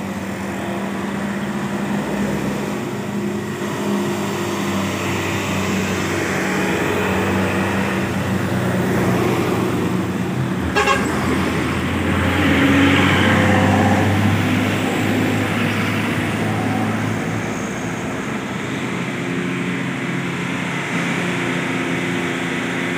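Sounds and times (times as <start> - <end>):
bus passing close: 0.0 - 22.9
heavy vehicle engines running: 0.0 - 22.9
vehicle horn tooting: 10.7 - 11.2.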